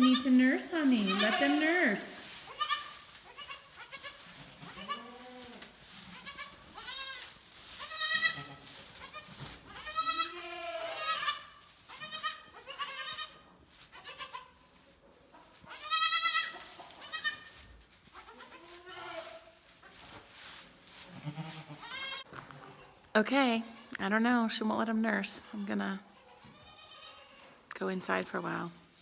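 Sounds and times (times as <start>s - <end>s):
goat kids bleating: 0.0s - 14.6s, 15.7s - 19.6s, 21.1s - 22.3s, 25.5s - 27.5s.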